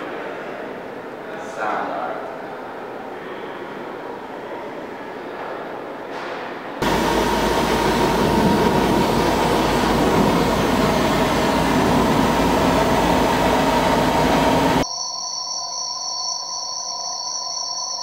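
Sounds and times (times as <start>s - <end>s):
loud steady roar: 6.8s - 14.8s
low hum: 6.8s - 14.8s.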